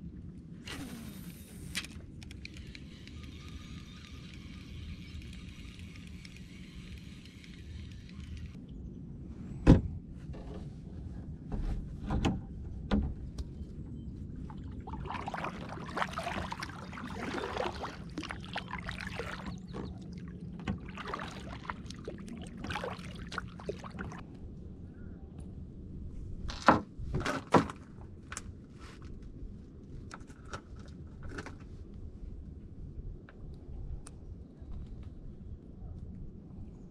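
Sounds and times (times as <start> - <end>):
fishing reel cranking: 0.8 - 8.6
paddle splashing through water: 14.5 - 24.2
water dripping: 14.5 - 24.2.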